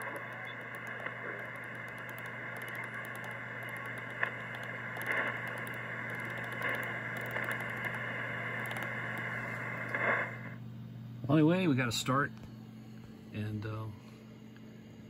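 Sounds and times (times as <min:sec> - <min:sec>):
radio receiver hissing: 0:00.0 - 0:10.6
low hum: 0:00.0 - 0:11.3.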